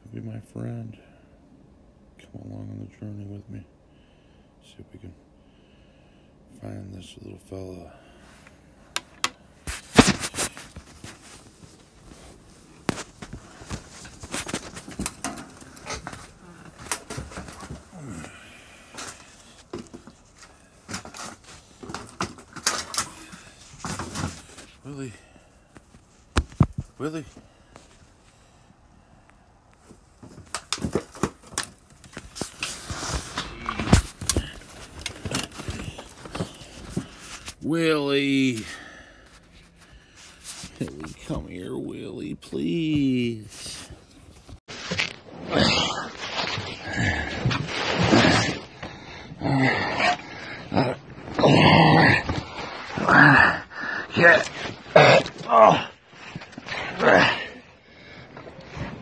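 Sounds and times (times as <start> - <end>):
clutter knocking and rattling: 9.0 - 17.9, 18.9 - 24.8, 25.8 - 27.0, 29.8 - 37.6
person shifting on feet: 9.0 - 24.8, 29.8 - 37.6.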